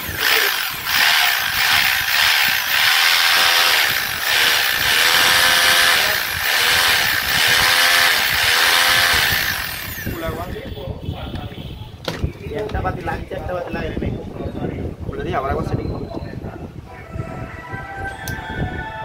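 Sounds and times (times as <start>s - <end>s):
drill motor speeding up: 0.0s - 10.4s.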